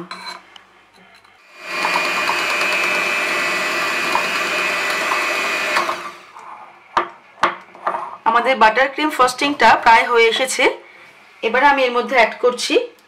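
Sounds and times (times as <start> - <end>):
electric hand mixer whining: 1.4 - 6.4.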